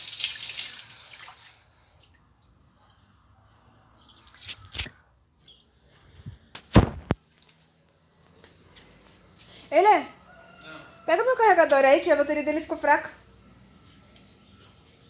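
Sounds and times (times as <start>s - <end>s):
water from hose splashing on tiles: 0.0s - 4.2s.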